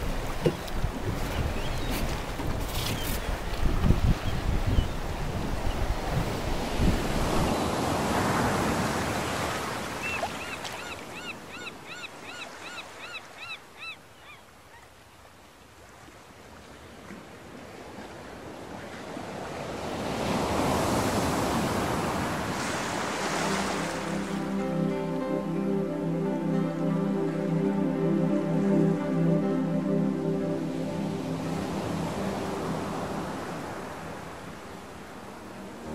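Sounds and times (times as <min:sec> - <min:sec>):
wind buffeting microphone: 0:00.0 - 0:08.8
sea water splashing: 0:00.0 - 0:13.1, 0:15.7 - 0:26.6
music: 0:23.2 - 0:35.9.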